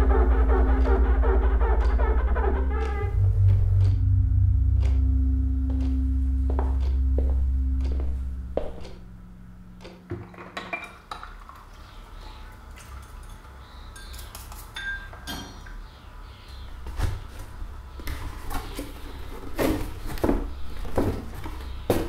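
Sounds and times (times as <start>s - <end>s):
dishes and cutlery clinking: 14.0s - 15.8s.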